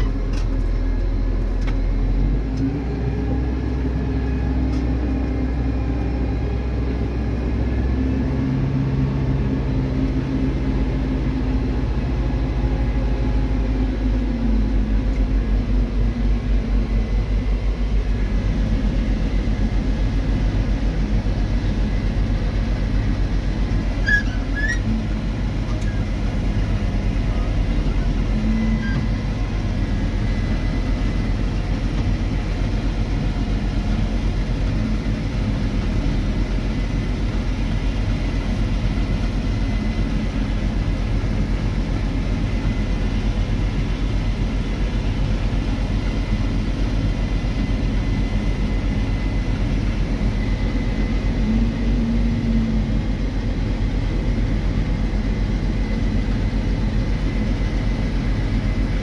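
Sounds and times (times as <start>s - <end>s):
combine harvester running: 0.0s - 59.0s
thin steady whine: 0.0s - 59.0s
tractor engine drone: 0.0s - 59.0s.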